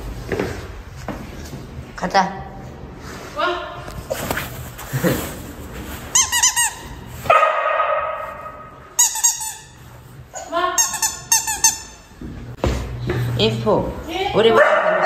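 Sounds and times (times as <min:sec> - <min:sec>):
squeaky dog toy squeaking: 0:06.1 - 0:07.0, 0:09.0 - 0:09.8, 0:10.8 - 0:12.1.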